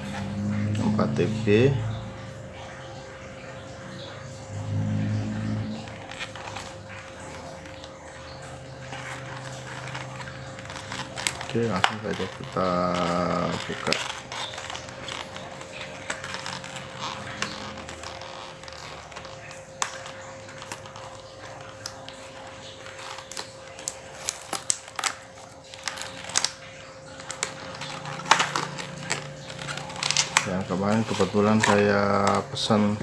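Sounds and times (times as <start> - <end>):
cardboard and plastic rustling: 3.5 - 33.0.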